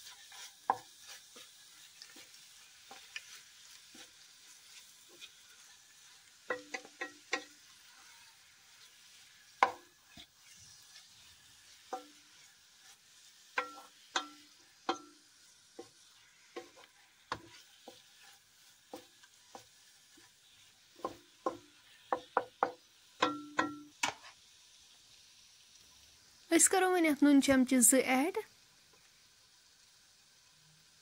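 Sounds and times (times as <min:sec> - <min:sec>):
spatula knocking and scraping pot: 0:00.0 - 0:04.1, 0:06.4 - 0:07.6, 0:09.6 - 0:10.3, 0:11.8 - 0:12.2, 0:13.5 - 0:15.2, 0:15.8 - 0:20.3, 0:20.9 - 0:24.3
faint frying sizzle: 0:00.0 - 0:31.0.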